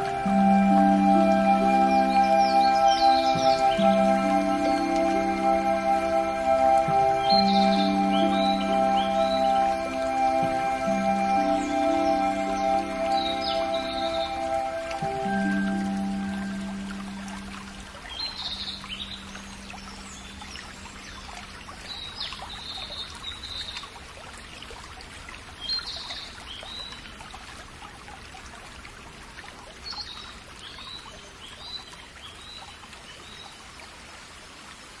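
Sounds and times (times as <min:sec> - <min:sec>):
held music note: 0:00.0 - 0:21.0
trickle of running water: 0:00.0 - 0:35.0
small birds chirping: 0:00.6 - 0:23.9.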